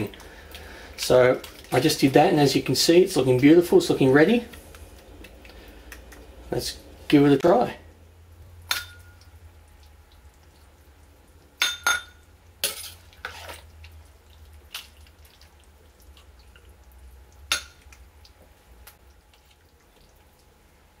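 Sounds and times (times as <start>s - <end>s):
soup splashing and dripping: 8.6s - 21.0s.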